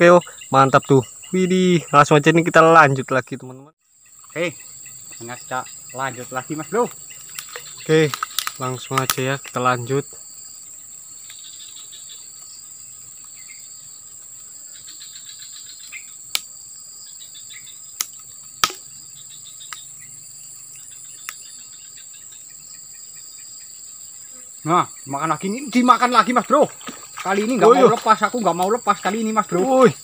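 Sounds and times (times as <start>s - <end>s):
insects chirring: 0.0s - 30.0s
sharp clicks: 7.3s - 9.6s.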